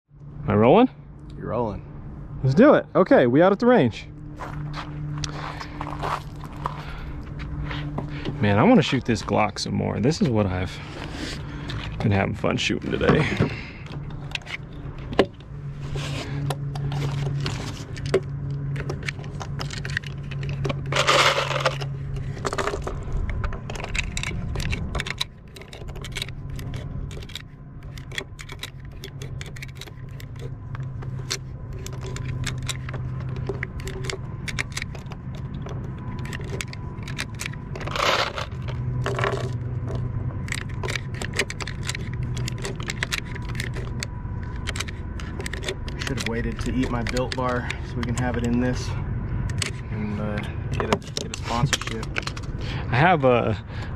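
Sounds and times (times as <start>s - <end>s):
low steady hum: 0.1s - 53.9s
small metallic clicks: 16.4s - 48.6s.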